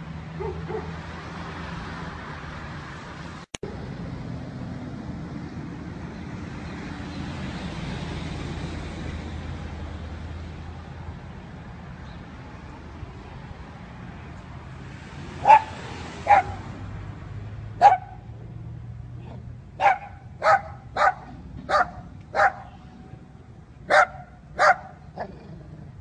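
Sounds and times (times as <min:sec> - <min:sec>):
dog barking: 0:00.4 - 0:01.0, 0:15.4 - 0:16.6, 0:17.8 - 0:18.2, 0:19.3 - 0:22.8, 0:23.9 - 0:25.4.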